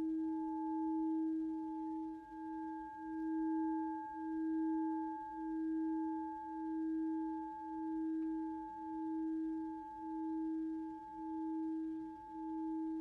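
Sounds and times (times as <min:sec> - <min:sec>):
meditative ringing tone: 0:00.0 - 0:13.0.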